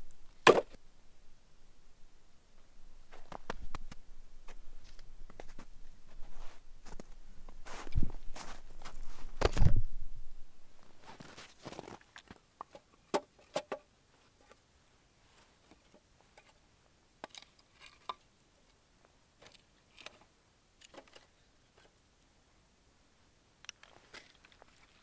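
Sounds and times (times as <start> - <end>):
footsteps through snow: 4.4 - 9.5, 10.8 - 12.0.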